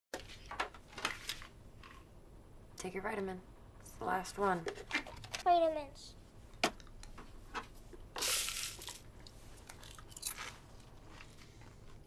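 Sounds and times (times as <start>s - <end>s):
chewing crunchy food: 9.2s - 12.0s.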